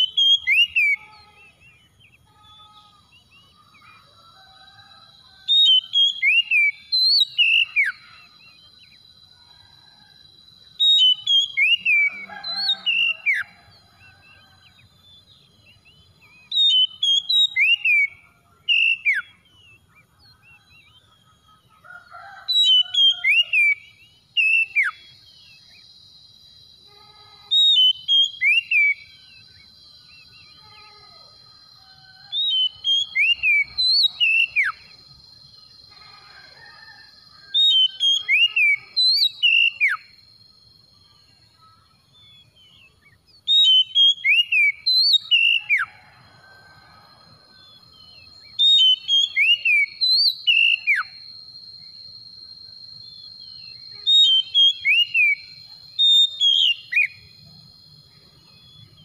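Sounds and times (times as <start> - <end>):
bird singing whistled phrases: 0.0 - 1.8, 5.6 - 8.2, 10.8 - 13.5, 15.8 - 19.4, 27.6 - 29.1, 43.4 - 45.9.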